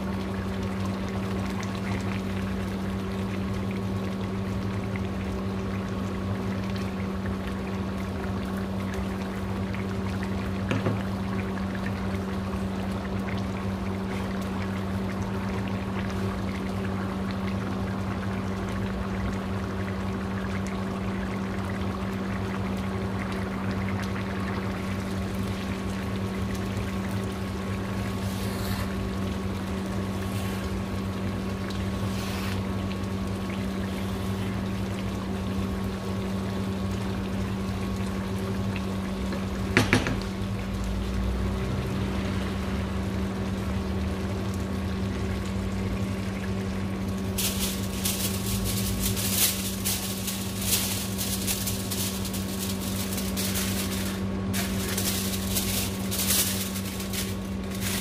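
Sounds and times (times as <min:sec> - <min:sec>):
low machine hum: 0:00.0 - 0:58.0
constant rushing noise: 0:47.4 - 0:58.0.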